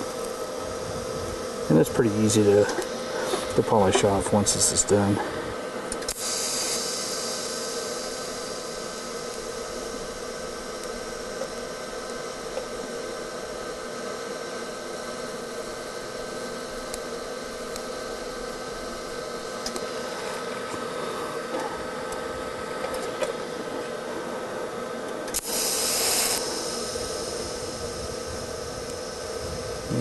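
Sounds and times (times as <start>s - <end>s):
faint steady hum: 0.0s - 30.0s
welding arc hissing: 5.9s - 20.6s, 25.2s - 30.0s.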